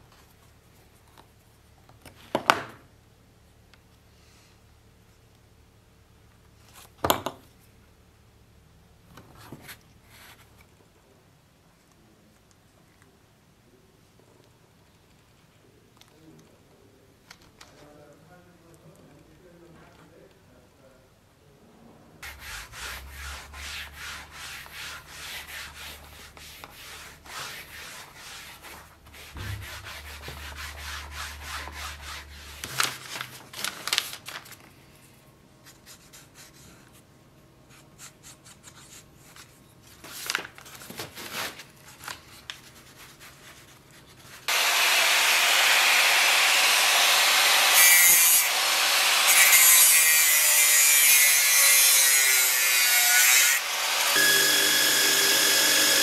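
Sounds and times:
rubbing on leather scabbard: 22.2s - 32.6s
angle grinder cutting steel: 44.5s - 56.0s.

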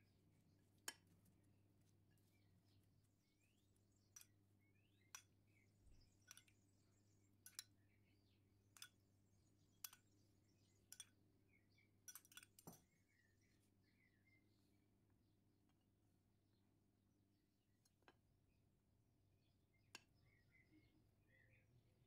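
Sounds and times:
metal spoon clinking on glass: 7.4s - 7.7s, 12.1s - 12.8s.

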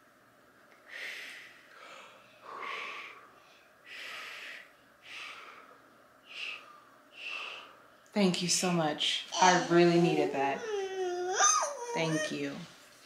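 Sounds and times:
person breathing softly: 0.8s - 8.0s.

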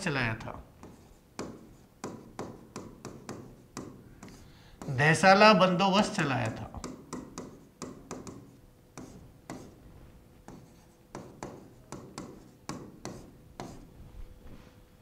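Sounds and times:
stylus tapping and scraping on screen: 0.8s - 5.0s, 6.4s - 13.9s.

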